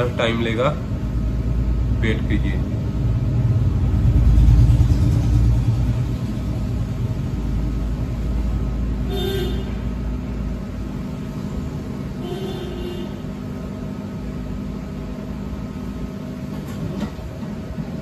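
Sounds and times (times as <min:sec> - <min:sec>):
loud low rumble: 0:02.6 - 0:08.7.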